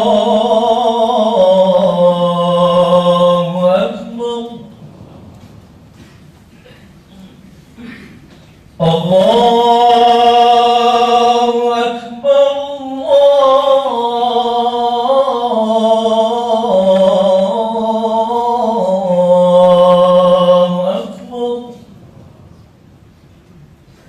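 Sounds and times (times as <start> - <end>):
man chanting call to prayer: 0.0 - 4.8, 8.8 - 22.0.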